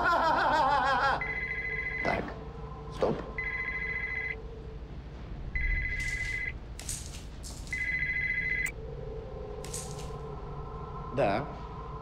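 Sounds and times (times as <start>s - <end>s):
phone beeping ringtone: 1.2s - 2.2s, 3.4s - 4.4s, 5.6s - 6.5s, 7.8s - 8.7s.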